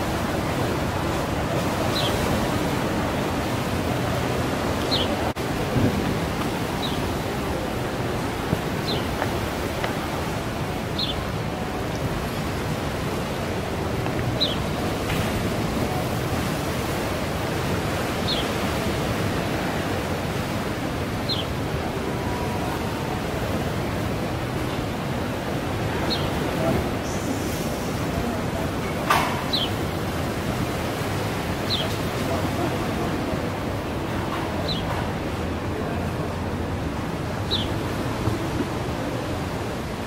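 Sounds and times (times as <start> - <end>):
ocean surf rushing: 0.0 - 40.0.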